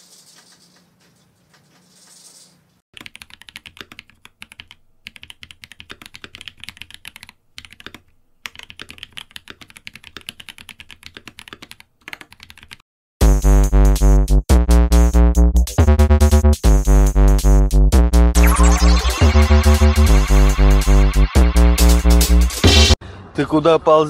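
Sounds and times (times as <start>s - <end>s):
mechanical keyboard typing: 3.0s - 12.8s
electronic music jingle: 17.9s - 23.0s.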